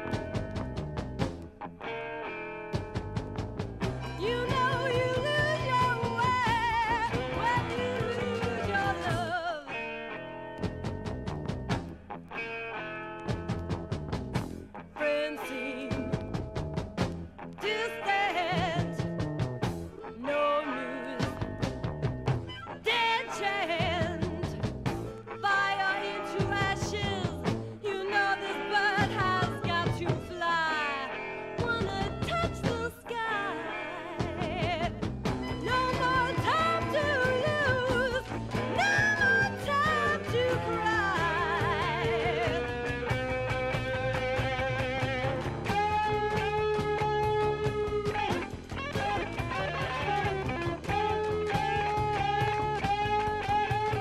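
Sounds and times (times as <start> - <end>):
steady drum beat: 0.0 - 1.5, 2.8 - 9.4, 13.3 - 14.7, 18.6 - 20.0, 34.4 - 54.0
blues-rock band playing: 0.0 - 54.0
electric guitar sustained notes: 0.0 - 54.0.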